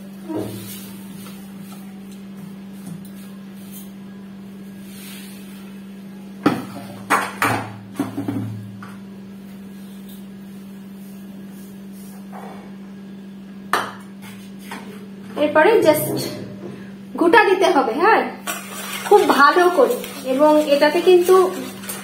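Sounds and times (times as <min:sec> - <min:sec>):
steady low hum: 0:00.0 - 0:22.0
utensils clinking against mixing bowl: 0:18.4 - 0:22.0.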